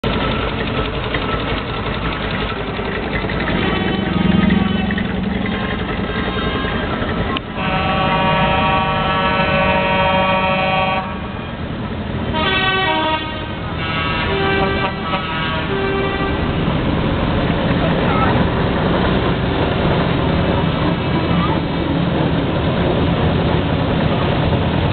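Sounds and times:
vehicles rumbling past: 0.0s - 24.9s
vehicle horns tooting: 3.5s - 11.4s, 12.3s - 16.6s.

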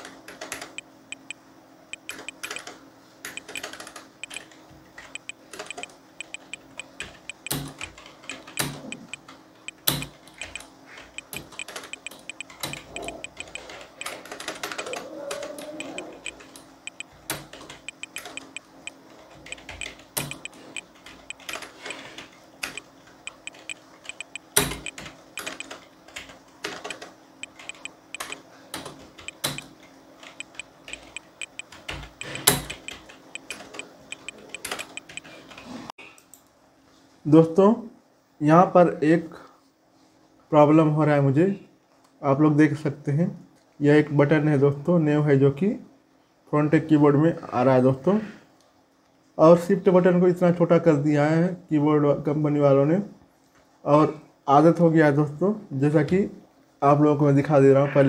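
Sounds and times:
keyboard key clicks: 2.0s - 2.7s, 3.3s - 4.5s, 5.1s - 14.2s, 15.8s - 21.6s, 22.6s - 25.8s, 29.2s - 29.7s, 30.4s - 35.3s.

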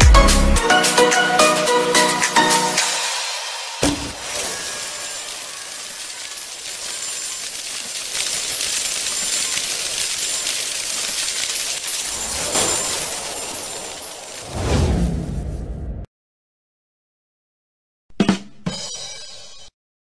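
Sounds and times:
bright tinkling sparkle hiss: 2.4s - 14.8s.

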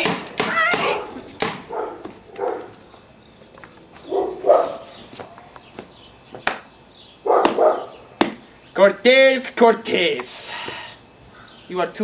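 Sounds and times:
dog barking: 0.7s - 2.8s, 4.1s - 4.9s, 7.2s - 8.0s.

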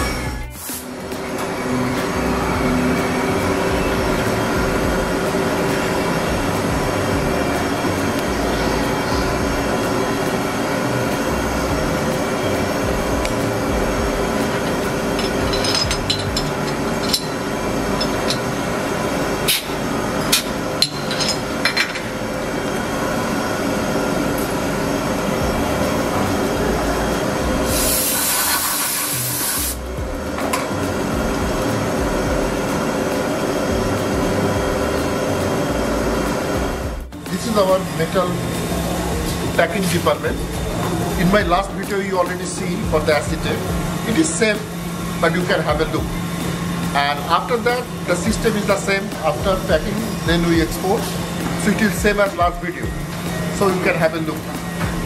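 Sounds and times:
milling machines humming: 0.0s - 55.0s
compressed air blow gun hissing: 0.5s - 1.0s, 27.6s - 29.9s.

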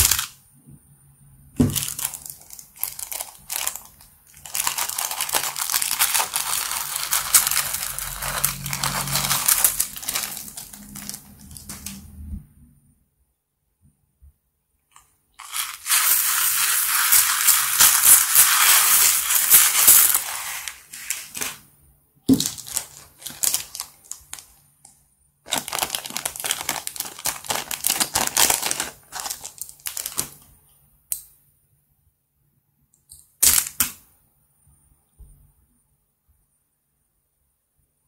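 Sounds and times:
plastic bag crinkling: 0.0s - 0.3s, 1.6s - 12.0s, 15.4s - 21.6s, 22.3s - 24.6s, 25.5s - 30.5s.

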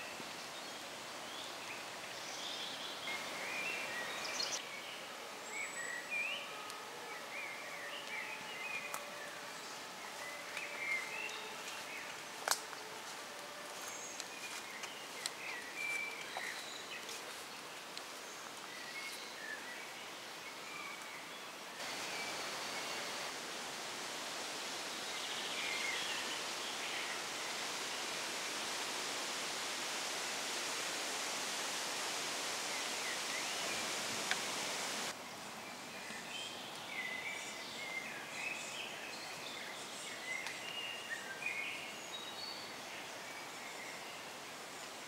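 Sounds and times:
steady outdoor hiss: 0.0s - 45.0s
small birds chirping: 13.7s - 23.3s.

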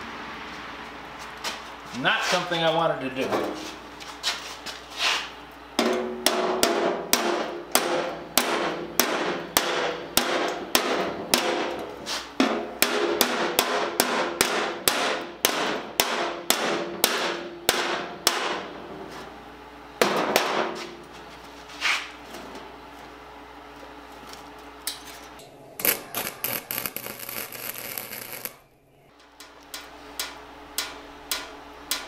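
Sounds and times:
hammer tapping metal bin: 5.8s - 18.7s, 20.0s - 21.0s, 29.4s - 32.0s.

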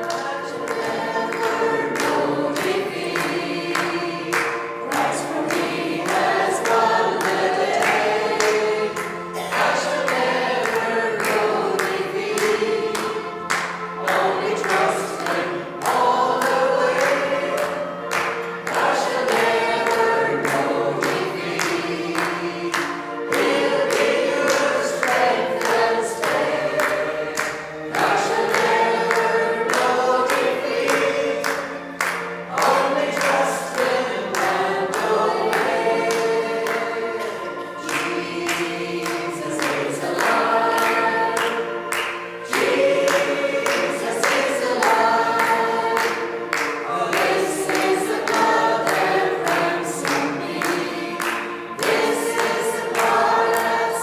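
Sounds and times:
congregation singing a gospel hymn: 0.0s - 54.0s
hands clapping in time: 0.0s - 54.0s.

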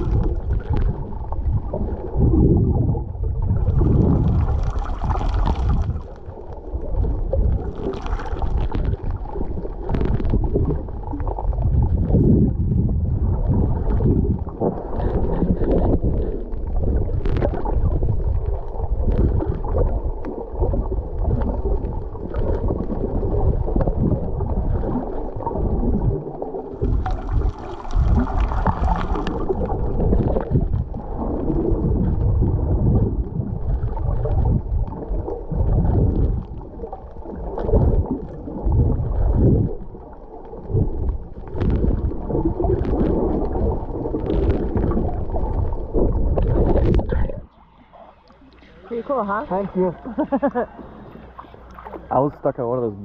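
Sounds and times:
underwater rumble and gurgling: 0.0s - 53.0s.

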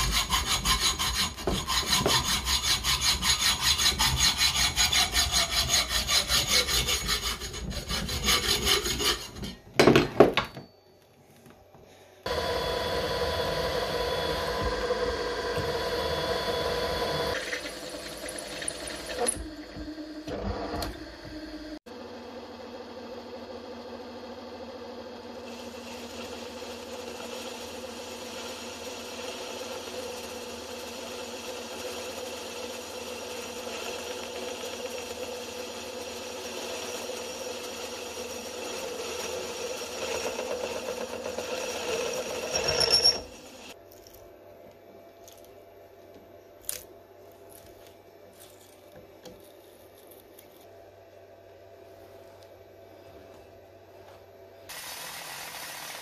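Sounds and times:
milling machine whine: 12.3s - 43.8s.

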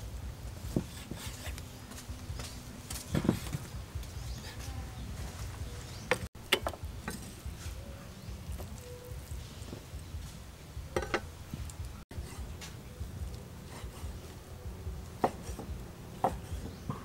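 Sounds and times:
low background rumble: 6.8s - 17.0s.

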